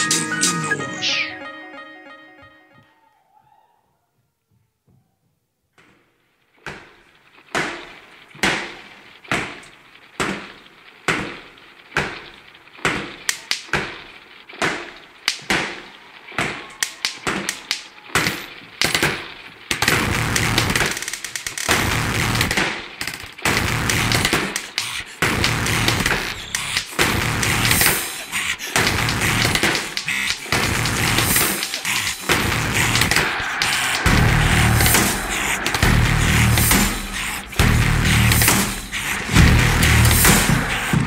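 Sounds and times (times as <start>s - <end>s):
distorted noise with fast pulse: 18.4s - 41.0s
heavy percussive hits: 25.3s - 41.0s.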